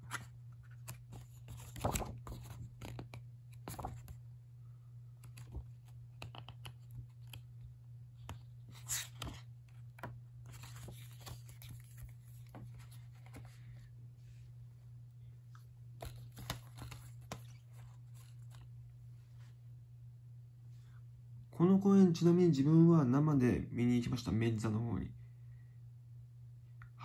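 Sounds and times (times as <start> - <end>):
paper pages rustling: 0.0 - 4.2, 5.2 - 7.5, 8.2 - 13.9, 16.0 - 18.8
steady low hum: 0.0 - 27.0.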